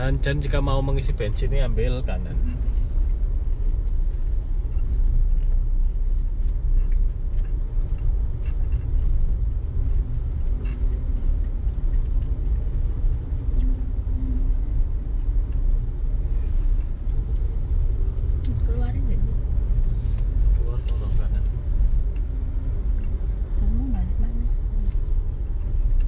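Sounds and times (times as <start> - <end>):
car engine and tyre rumble: 0.0 - 26.0.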